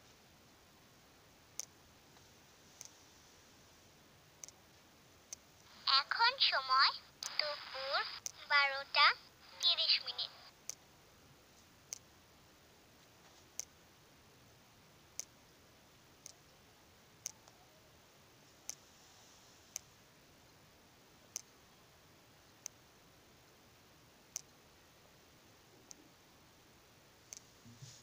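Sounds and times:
room hiss: 0.0s - 28.0s
faint sharp clicks: 1.6s - 3.0s, 4.4s - 4.6s, 7.2s - 8.5s, 10.6s - 10.8s, 11.9s - 12.1s, 15.2s - 15.4s, 21.3s - 21.6s, 24.3s - 24.6s, 25.8s - 26.0s, 27.3s - 27.5s.

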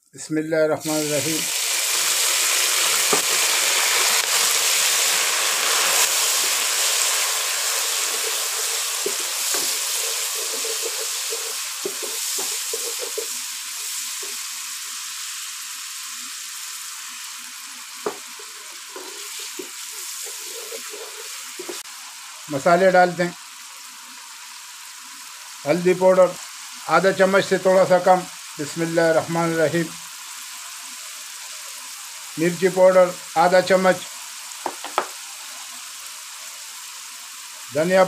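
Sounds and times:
liquid sizzling in hot oil: 0.8s - 38.0s
wooden spatula scraping a pot: 5.9s - 13.4s, 18.2s - 21.8s.

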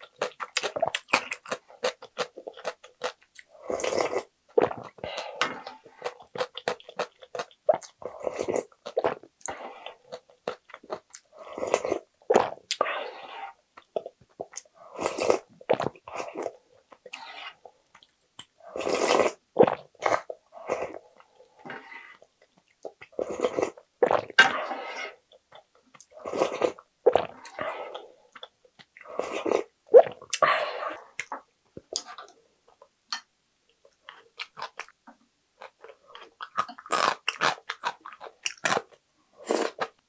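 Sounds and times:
person chewing: 0.0s - 12.9s, 35.6s - 40.0s
person slurping broth: 11.4s - 13.6s, 18.7s - 22.2s, 23.2s - 25.2s, 29.0s - 31.2s.

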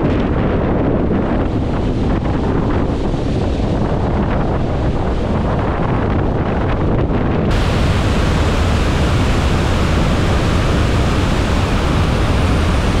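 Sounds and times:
water roaring down spillway: 7.5s - 13.0s.

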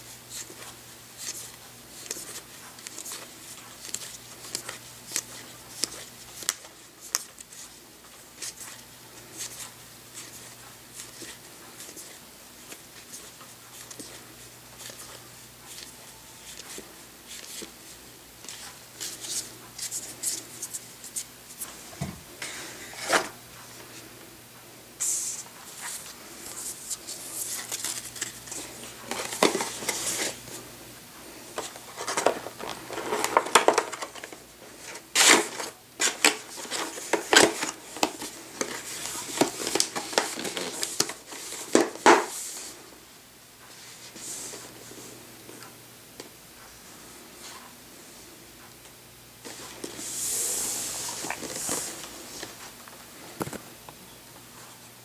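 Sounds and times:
cards shuffling: 0.3s - 14.2s, 25.1s - 30.4s, 31.5s - 42.4s
plastic packaging crinkling: 31.6s - 42.4s.

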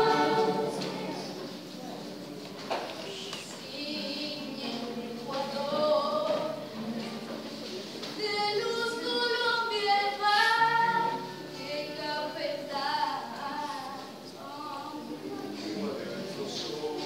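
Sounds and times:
youth chorus singing: 0.0s - 1.6s.

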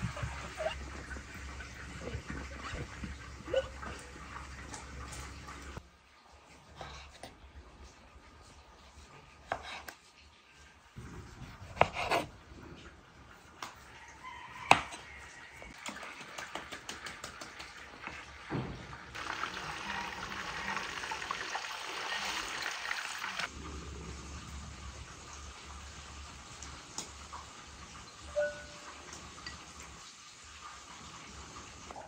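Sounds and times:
patties sizzling in hot oil: 19.2s - 23.5s.

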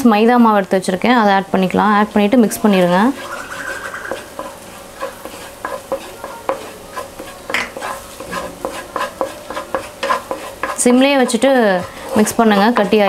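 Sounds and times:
light sizzle: 0.0s - 13.0s
spatula scraping a pan: 2.3s - 13.0s.

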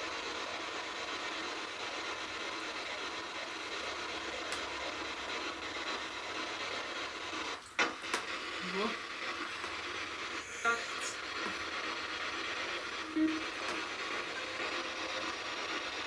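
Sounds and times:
static hiss: 0.0s - 16.0s.

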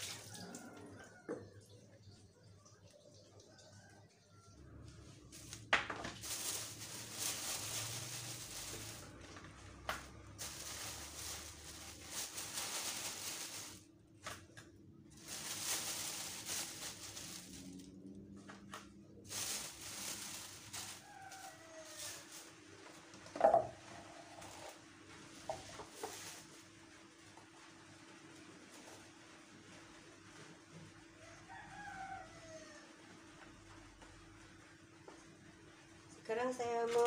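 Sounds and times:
plastic bag crinkling: 5.3s - 14.2s, 15.1s - 22.7s, 24.4s - 26.9s.

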